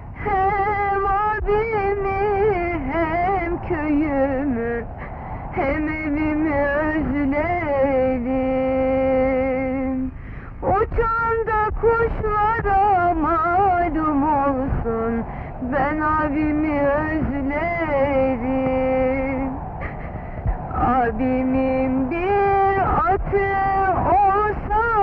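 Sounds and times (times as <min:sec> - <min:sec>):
woman singing solo: 0:00.1 - 0:19.6, 0:20.7 - 0:25.0.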